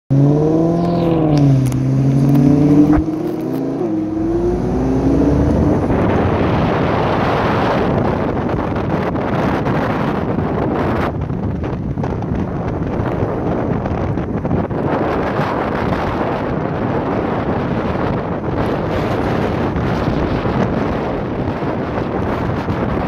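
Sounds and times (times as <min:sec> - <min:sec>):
car engine revving: 0:00.1 - 0:08.5
wind rushing past microphone: 0:00.1 - 0:23.0.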